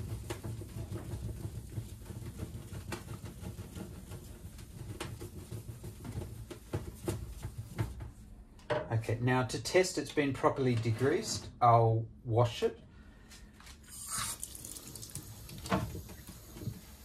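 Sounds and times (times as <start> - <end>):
felt rubbing on copper plate: 0.0 - 8.0.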